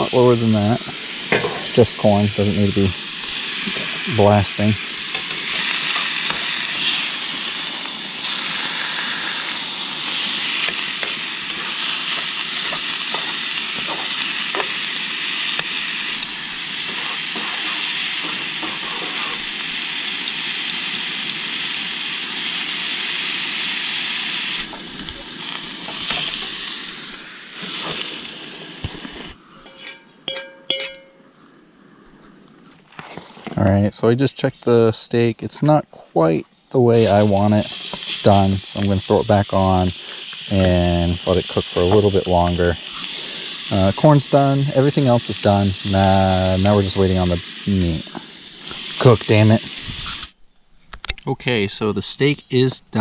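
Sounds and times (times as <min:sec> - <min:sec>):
food sizzling in a frying pan: 0:00.0 - 0:29.4, 0:37.0 - 0:50.4
metal clinks of pan and tongs: 0:29.7 - 0:31.2.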